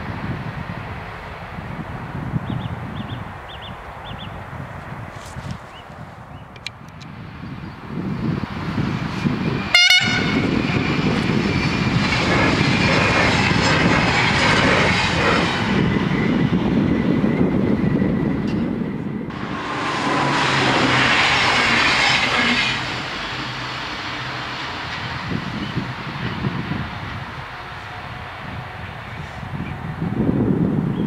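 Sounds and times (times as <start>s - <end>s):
electric trains passing: 0.0s - 5.1s, 6.5s - 31.0s
train horn toot: 9.7s - 10.6s, 19.3s - 26.6s.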